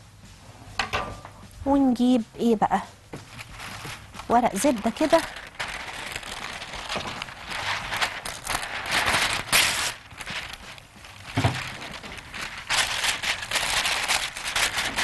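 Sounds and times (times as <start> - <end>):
baking parchment rustling: 3.2 - 15.0.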